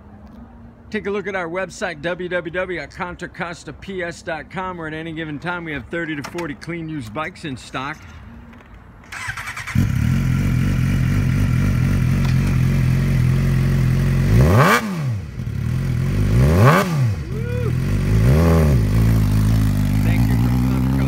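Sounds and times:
motorcycle engine starting and idling: 9.0s - 21.0s
motorcycle engine revving: 9.1s - 21.0s.

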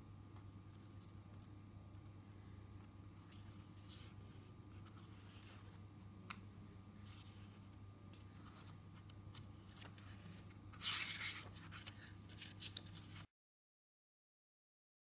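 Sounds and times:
low steady hum: 0.0s - 13.3s
book pages turning: 3.2s - 13.3s.

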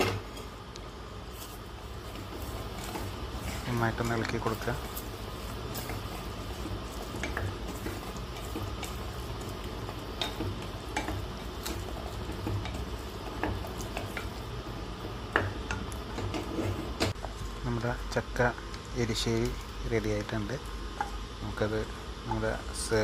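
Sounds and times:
steady low hum: 0.0s - 23.0s
wooden spatula stirring thick curry: 1.3s - 17.5s
spatula scraping and tapping pot: 1.4s - 17.4s.

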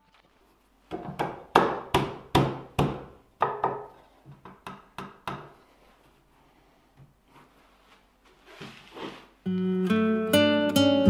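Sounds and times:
knocks on wooden dowels: 0.9s - 5.6s.

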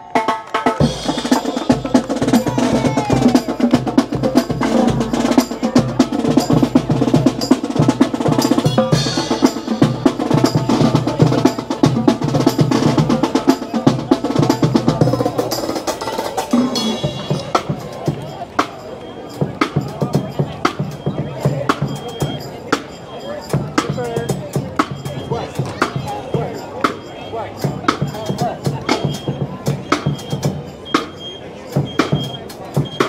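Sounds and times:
snare drum strokes and rolls: 0.0s - 22.9s, 23.5s - 33.0s
bass drum beats: 0.4s - 18.4s.

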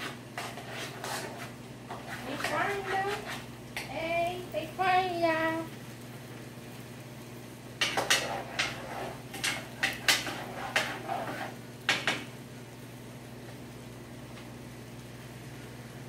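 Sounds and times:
pots and pans clattering: 7.8s - 12.3s.

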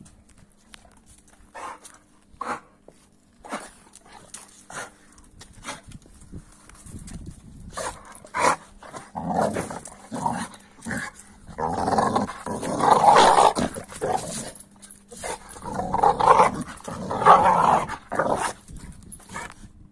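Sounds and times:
dog growling in play: 7.8s - 19.6s.

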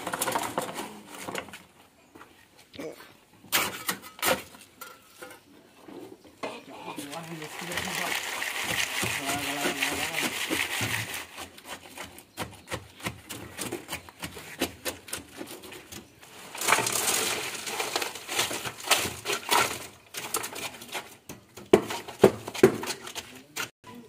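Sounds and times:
rustling noise: 6.9s - 12.0s.

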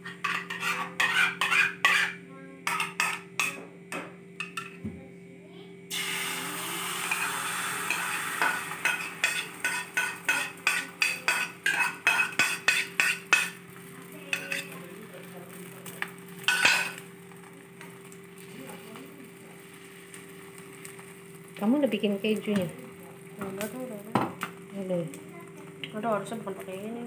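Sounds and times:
fork tapping and scraping a bowl: 0.0s - 3.6s, 8.8s - 13.6s, 14.3s - 14.7s
egg sizzling in hot oil: 5.9s - 26.8s.

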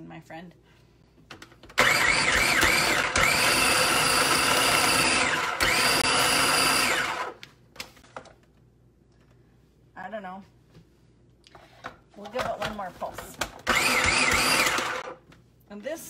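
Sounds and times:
food processor motor whining: 1.8s - 7.4s, 13.6s - 15.2s.

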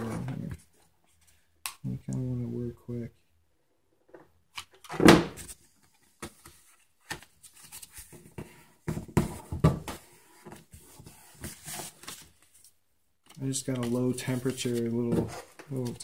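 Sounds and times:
cardboard rustling and scraping: 6.3s - 12.5s.

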